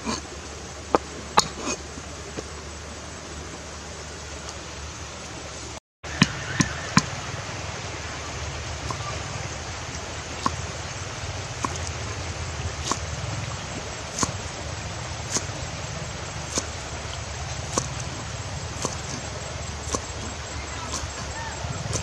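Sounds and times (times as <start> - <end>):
steady hiss: 0.0 - 22.0
cleaver chopping on wooden board: 14.1 - 14.4, 15.3 - 15.6, 16.5 - 16.8, 17.7 - 18.1, 18.8 - 21.3.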